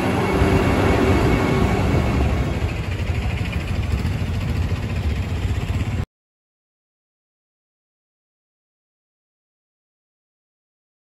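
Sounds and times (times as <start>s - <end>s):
street traffic engines running: 0.0s - 6.0s.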